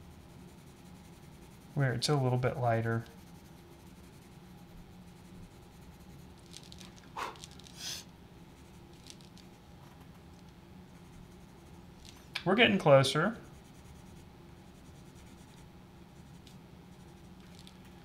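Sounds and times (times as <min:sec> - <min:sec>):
colored pencil scratching paper: 0:00.0 - 0:06.5, 0:10.9 - 0:11.8, 0:13.4 - 0:17.4.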